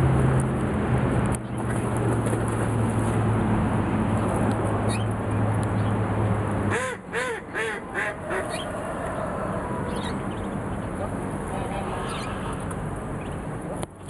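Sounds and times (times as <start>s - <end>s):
duck quacking: 6.7s - 8.7s
ducklings peeping: 6.7s - 9.3s.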